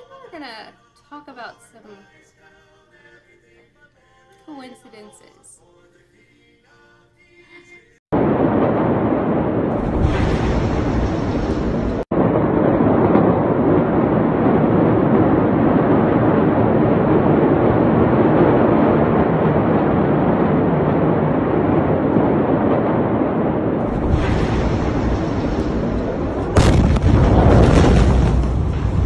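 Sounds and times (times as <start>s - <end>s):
loud steady rumbling: 8.2s - 29.0s.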